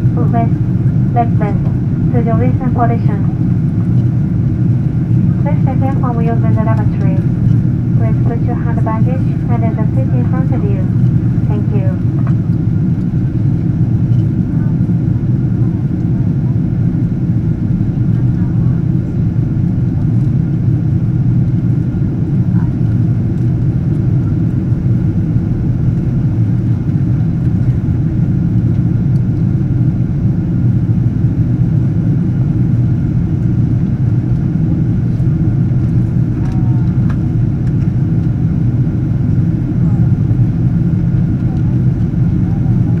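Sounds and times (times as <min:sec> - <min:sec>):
airliner cabin engine rumble: 0:00.0 - 0:43.0.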